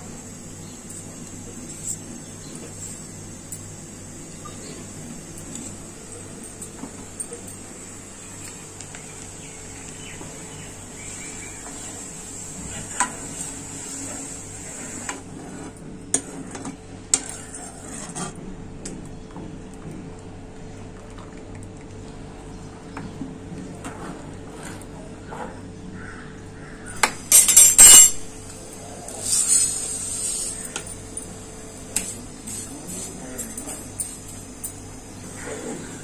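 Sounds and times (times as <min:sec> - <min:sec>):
steady background hum: 0:00.0 - 0:36.0
spoon stirring milk in metal pan: 0:12.8 - 0:18.4
spoon clinking against pan: 0:27.3 - 0:28.2.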